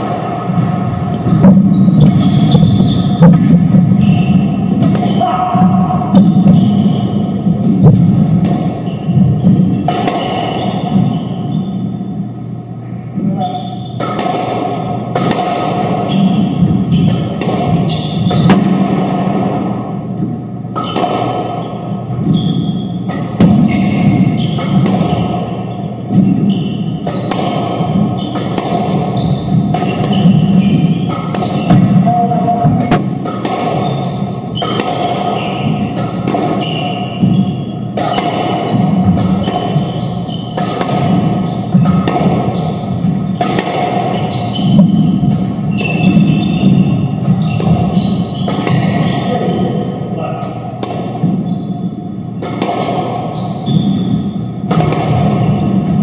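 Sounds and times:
squash ball knocks: 0:00.0 - 0:06.9, 0:07.6 - 0:11.1, 0:14.0 - 0:22.3, 0:22.9 - 0:49.9, 0:50.5 - 0:51.4, 0:52.3 - 0:53.1, 0:53.8 - 0:56.0
shoe squeaks on hardwood floor: 0:01.6 - 0:03.3, 0:03.9 - 0:12.0, 0:13.3 - 0:14.0, 0:16.0 - 0:18.5, 0:21.6 - 0:24.8, 0:25.7 - 0:27.3, 0:28.1 - 0:32.6, 0:33.8 - 0:35.9, 0:36.6 - 0:38.2, 0:39.4 - 0:49.9, 0:51.4 - 0:51.9, 0:53.0 - 0:54.4.

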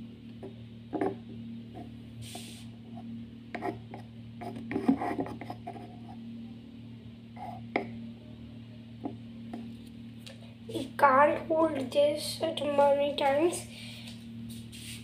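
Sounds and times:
low hum: 0:00.0 - 0:15.0
stick scraping clay pot: 0:03.6 - 0:06.2.

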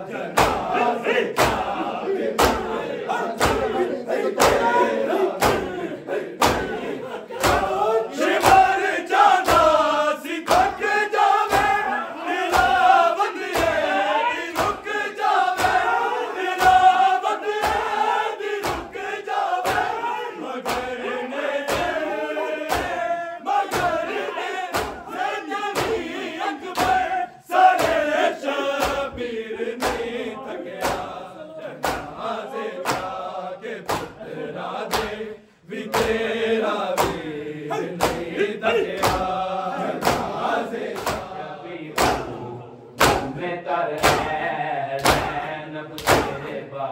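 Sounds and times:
men chanting a lament in unison: 0:00.0 - 0:46.9
hands slapping chests: 0:00.3 - 0:00.8, 0:01.4 - 0:01.8, 0:02.4 - 0:02.8, 0:03.4 - 0:03.8, 0:04.4 - 0:04.8, 0:05.4 - 0:05.8, 0:06.4 - 0:07.8, 0:08.4 - 0:09.9, 0:10.5 - 0:11.8, 0:12.5 - 0:13.8, 0:14.6 - 0:15.9, 0:16.6 - 0:18.0, 0:18.6 - 0:19.0, 0:19.6 - 0:19.9, 0:20.6 - 0:20.9, 0:21.7 - 0:22.0, 0:22.7 - 0:23.0, 0:23.7 - 0:24.1, 0:24.7 - 0:25.1, 0:25.8 - 0:26.1, 0:26.7 - 0:27.1, 0:27.8 - 0:28.1, 0:28.7 - 0:29.1, 0:29.8 - 0:30.1, 0:30.8 - 0:31.2, 0:31.8 - 0:32.2, 0:32.8 - 0:33.2, 0:33.8 - 0:34.2, 0:34.9 - 0:35.2, 0:35.9 - 0:36.2, 0:36.9 - 0:37.2, 0:38.0 - 0:38.3, 0:38.9 - 0:39.3, 0:40.0 - 0:41.3, 0:42.0 - 0:42.3, 0:43.0 - 0:43.4, 0:44.0 - 0:44.4, 0:45.0 - 0:45.4, 0:46.0 - 0:46.4.

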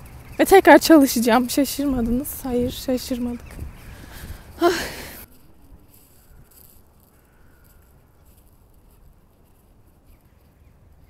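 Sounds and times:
wind noise on microphone: 0:01.2 - 0:11.0
crows cawing: 0:06.2 - 0:08.3.

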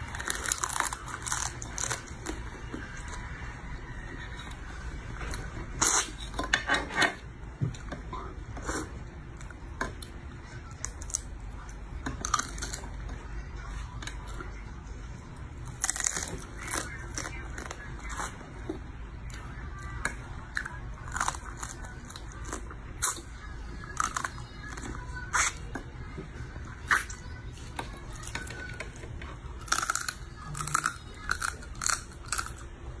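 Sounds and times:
crab shell crunching between teeth: 0:00.0 - 0:02.4, 0:15.6 - 0:17.7, 0:29.6 - 0:32.6
chewing: 0:00.0 - 0:03.2, 0:15.6 - 0:25.7, 0:26.8 - 0:32.7
steady low hum: 0:00.0 - 0:33.0
crab shell cracking: 0:29.7 - 0:32.6.

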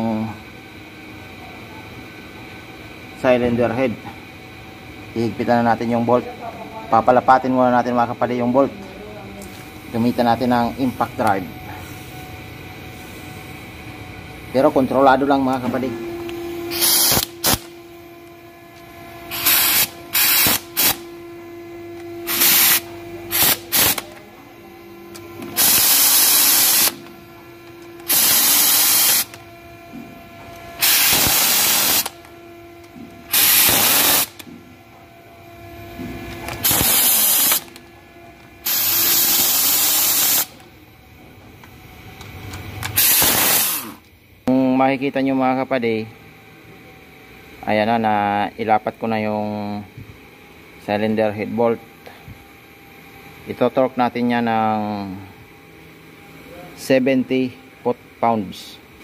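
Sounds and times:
air hissing: 0:16.2 - 0:17.9, 0:19.2 - 0:21.2, 0:22.2 - 0:24.2, 0:25.4 - 0:27.1, 0:27.9 - 0:29.4, 0:30.8 - 0:32.2, 0:33.3 - 0:34.5, 0:36.5 - 0:37.8, 0:38.6 - 0:40.6, 0:42.9 - 0:44.0
air impact driver bursts: 0:16.3 - 0:17.9, 0:19.2 - 0:21.2, 0:22.0 - 0:24.2, 0:25.1 - 0:27.1, 0:27.7 - 0:29.5, 0:30.6 - 0:34.6, 0:36.4 - 0:37.9, 0:38.6 - 0:40.7, 0:42.8 - 0:44.1.

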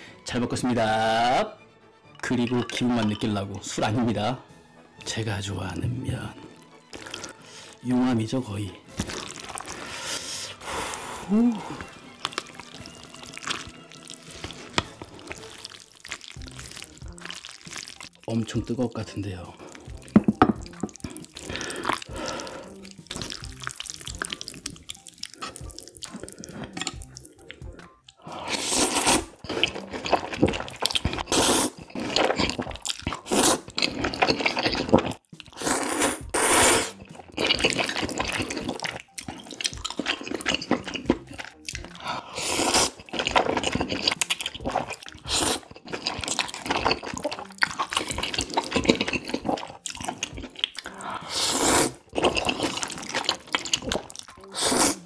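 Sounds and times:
noodles slurping: 0:06.1 - 0:07.9, 0:08.9 - 0:55.0
chewing: 0:06.9 - 0:07.4, 0:08.9 - 0:10.6, 0:11.6 - 0:18.4, 0:19.5 - 0:36.1, 0:36.8 - 0:55.0.

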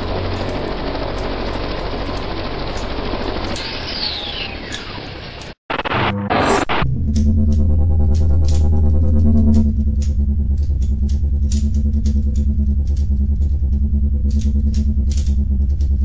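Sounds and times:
electronic music with heavy bass: 0:05.7 - 0:16.0.

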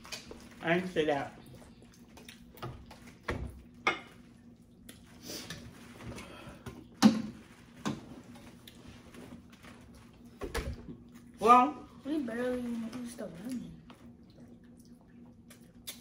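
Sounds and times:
faint steady hum: 0:00.0 - 0:16.0
eating noises: 0:01.4 - 0:05.5, 0:13.5 - 0:16.0.

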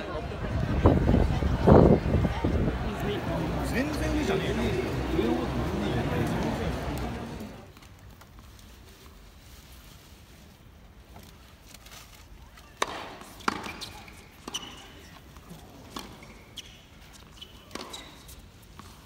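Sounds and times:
low crowd background: 0:00.0 - 0:19.0
ball bouncing on hard court: 0:12.8 - 0:14.9, 0:15.9 - 0:16.7, 0:17.4 - 0:18.3
racket striking tennis ball: 0:12.8 - 0:14.9, 0:17.6 - 0:18.3.

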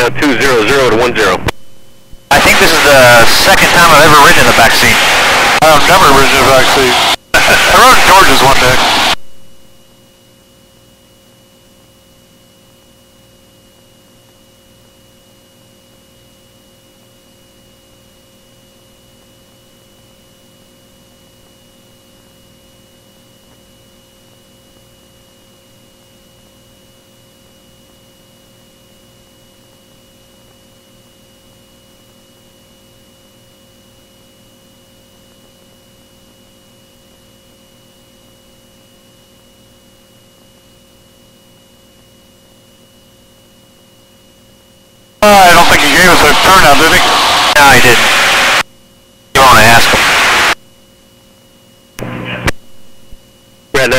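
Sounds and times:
electrical hum: 0:00.0 - 0:15.0, 0:44.4 - 0:53.9
thin high whine: 0:02.3 - 0:09.8, 0:45.2 - 0:48.7, 0:49.4 - 0:50.6.

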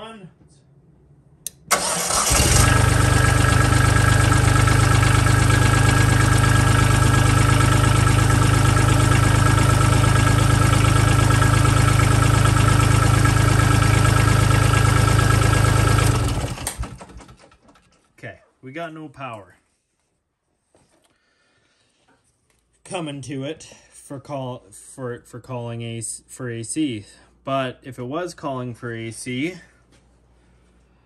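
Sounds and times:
diesel tractor engine idling: 0:01.7 - 0:17.3.

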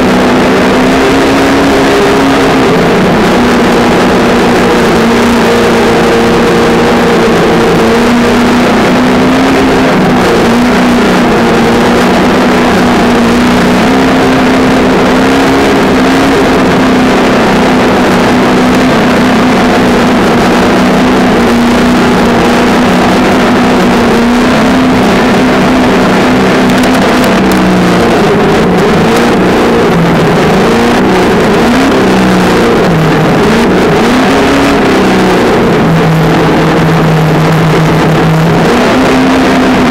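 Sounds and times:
broad rushing noise: 0:00.0 - 0:39.9
simulated engine sound from speaker: 0:00.0 - 0:39.9.

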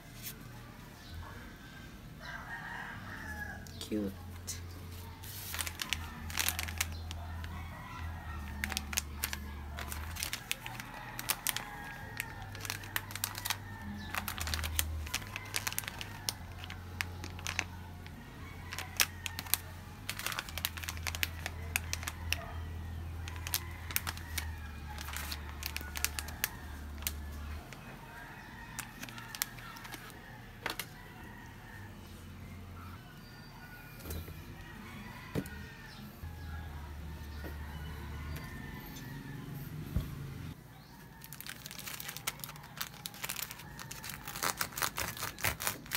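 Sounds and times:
foil pouches crinkling: 0:05.2 - 0:31.0, 0:41.1 - 0:45.9.

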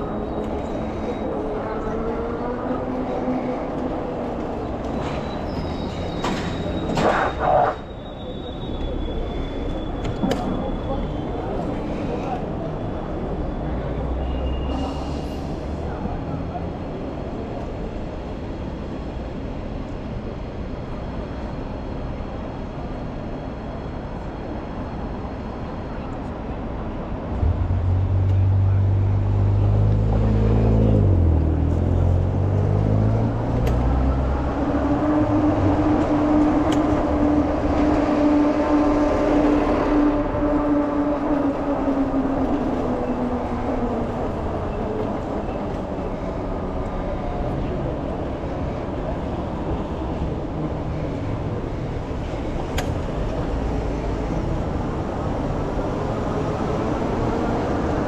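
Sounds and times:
vehicle rumble: 0:00.0 - 0:23.1, 0:24.9 - 0:58.0
vehicle hum: 0:27.2 - 0:58.0.

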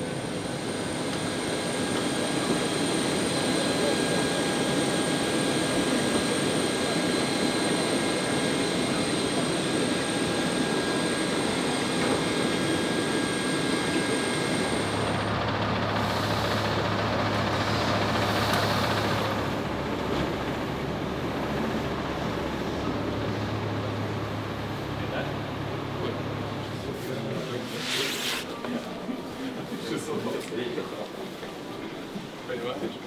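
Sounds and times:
jet airliner roar with high whine: 0:00.0 - 0:27.8
bus engine idling: 0:12.5 - 0:27.0.

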